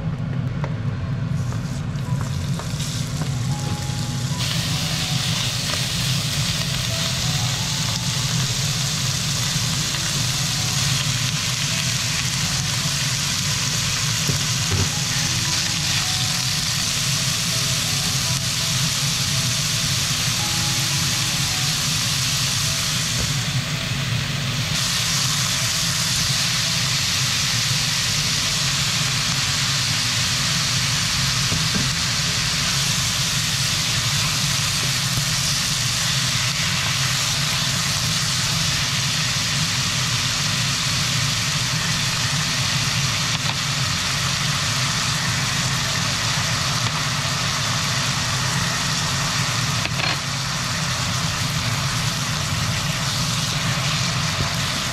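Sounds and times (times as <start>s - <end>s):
food sizzling in a frying pan: 1.3s - 54.9s.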